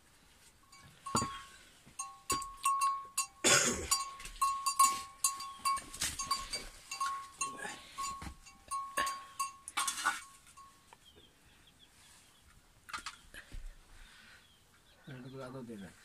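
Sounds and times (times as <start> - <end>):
small metal bell clinking: 0.6 - 10.9.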